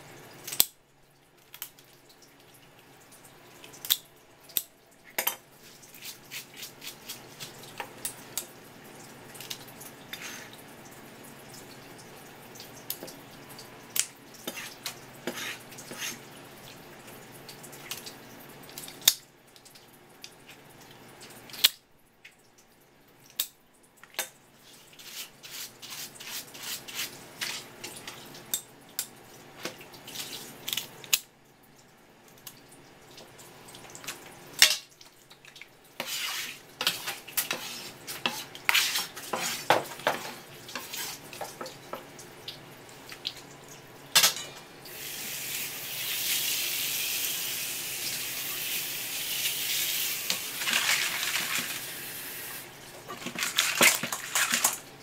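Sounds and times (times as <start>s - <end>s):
trickle of tap water: 7.4s - 25.0s, 27.4s - 36.1s, 36.8s - 43.9s
water rushing from spray hose: 44.9s - 52.7s.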